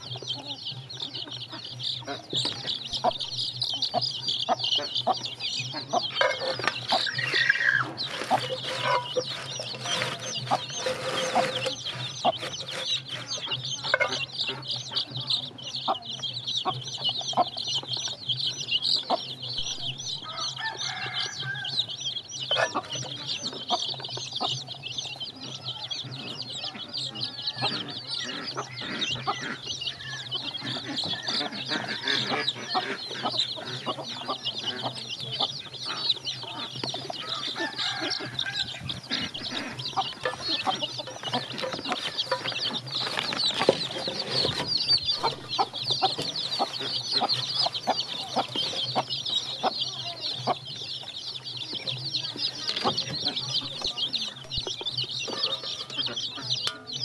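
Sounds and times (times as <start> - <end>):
chicks peeping: 0.0 - 57.0.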